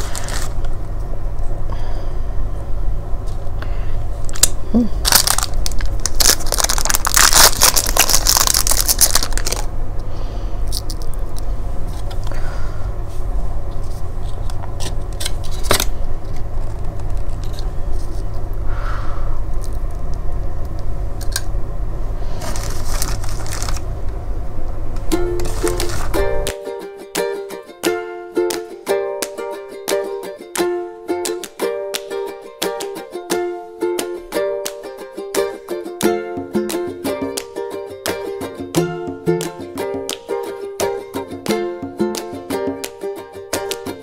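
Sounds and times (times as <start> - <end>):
steady low hum: 0.0 - 44.0.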